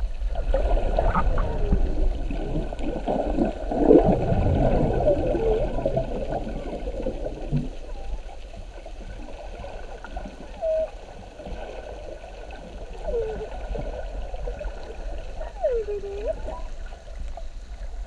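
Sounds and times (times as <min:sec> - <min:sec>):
underwater rumble and gurgling: 0:00.0 - 0:18.0
bubble-like squeaks: 0:10.5 - 0:10.9.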